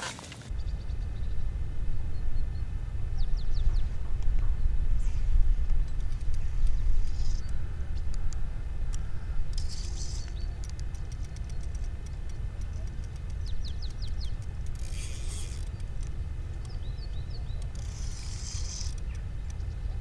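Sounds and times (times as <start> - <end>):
steady low rumble: 0.5 - 20.0
fishing reel clicking: 9.6 - 16.1, 17.6 - 19.0.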